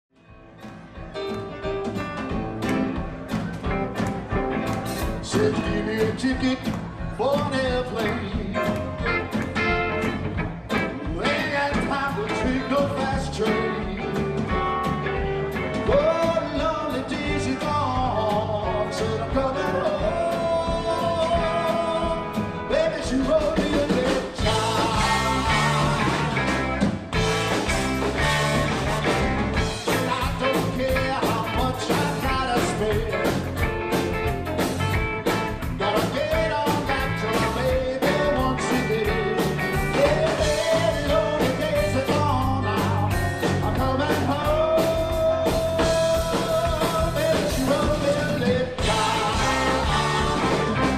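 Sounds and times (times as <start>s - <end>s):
live rock band playing: 0.2s - 50.9s
person singing lead: 15.8s - 26.7s, 35.8s - 50.9s.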